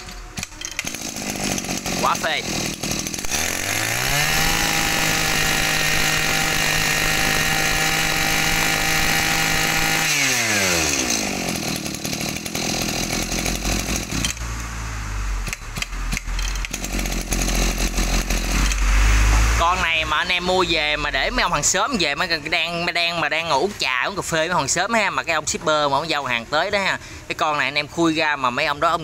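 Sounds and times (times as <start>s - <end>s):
brush cutter engine revving: 0.0s - 22.7s.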